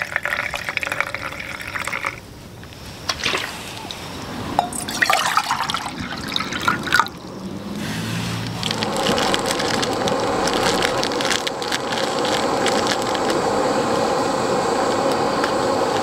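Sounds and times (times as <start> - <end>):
camp stove rushing: 0.0 - 16.0
sharp crackles: 7.2 - 14.3.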